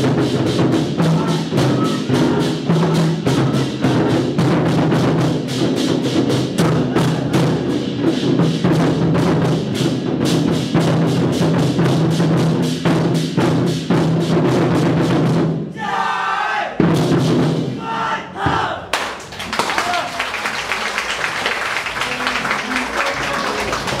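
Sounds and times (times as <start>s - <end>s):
war drums beating: 0.0s - 20.3s, 21.0s - 24.0s
voices: 1.0s - 4.4s, 19.6s - 24.0s.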